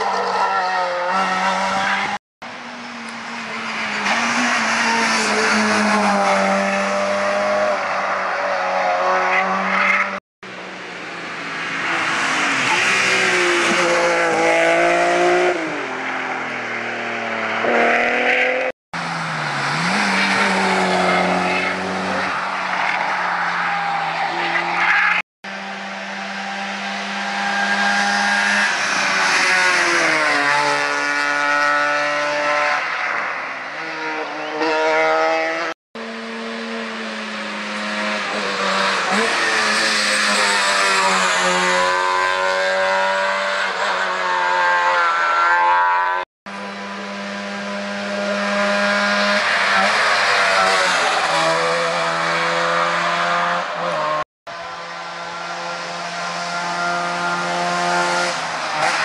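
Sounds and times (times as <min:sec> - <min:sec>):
rally cars passing at speed: 0:00.0 - 0:59.0.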